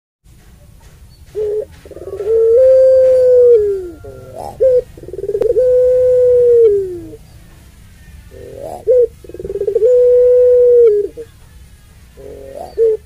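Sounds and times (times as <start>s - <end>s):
dove cooing: 1.3s - 7.2s, 8.2s - 11.3s, 12.2s - 13.0s.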